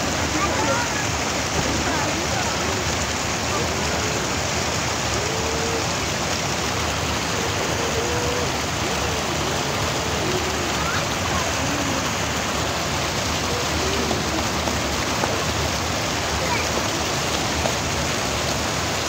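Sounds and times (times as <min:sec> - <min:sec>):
faint voices calling: 0:00.0 - 0:19.0
water rushing over weir: 0:00.0 - 0:19.0.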